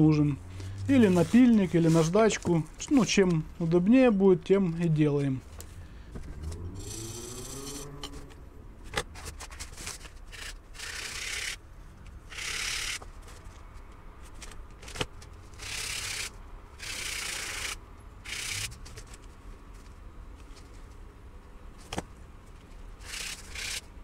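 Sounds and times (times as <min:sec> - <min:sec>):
brush scraping on abrasive: 0:00.9 - 0:02.4.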